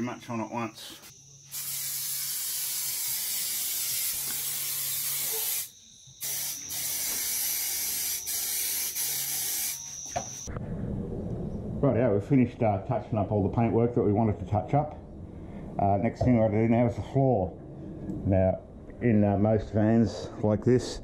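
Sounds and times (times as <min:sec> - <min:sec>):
aerosol spray can hissing: 0:01.0 - 0:10.5.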